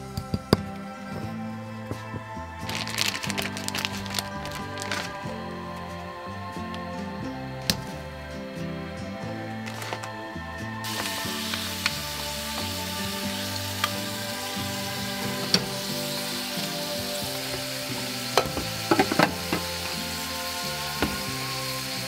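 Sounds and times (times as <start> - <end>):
meat sizzling in a frying pan: 10.8 - 22.0.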